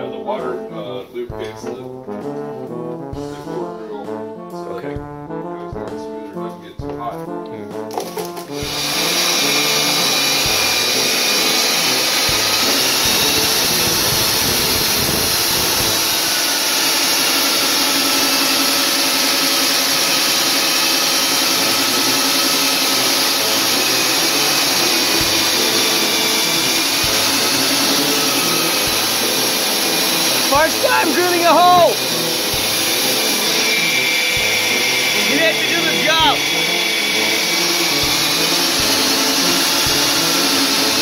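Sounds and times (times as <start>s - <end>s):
core drill boring: 7.9s - 41.0s
shop vacuum running: 7.9s - 41.0s.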